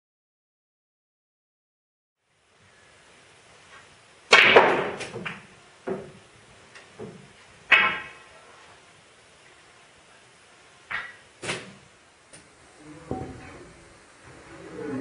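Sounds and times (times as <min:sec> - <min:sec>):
snooker balls clacking: 0:04.3 - 0:06.2, 0:06.8 - 0:08.2, 0:13.1 - 0:13.8.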